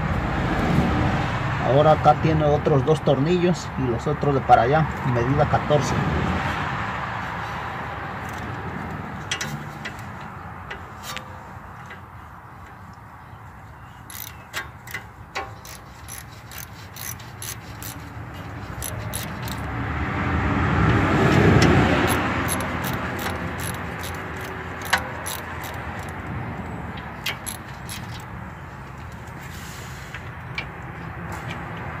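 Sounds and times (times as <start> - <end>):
vehicle passing: 0.0 - 2.6, 5.4 - 11.7, 15.6 - 32.0
ratchet wrench clicking: 8.2 - 8.5, 14.1 - 19.7, 21.6 - 26.3, 27.2 - 28.3.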